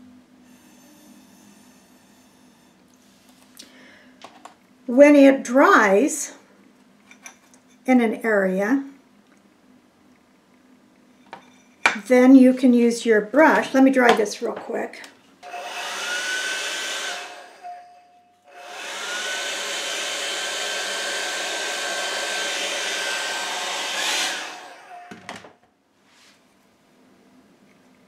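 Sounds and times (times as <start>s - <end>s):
hair dryer blowing: 15.4s - 17.9s, 18.5s - 25.3s.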